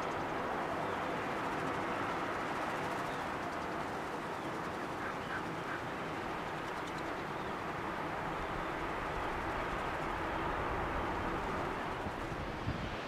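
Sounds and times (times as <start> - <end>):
seabird colony noise: 0.0 - 11.9.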